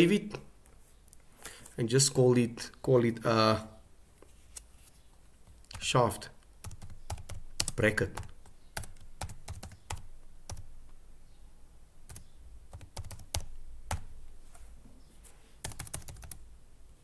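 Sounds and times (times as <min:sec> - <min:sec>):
keyboard typing: 0:06.6 - 0:10.7, 0:12.1 - 0:14.2, 0:15.6 - 0:16.4.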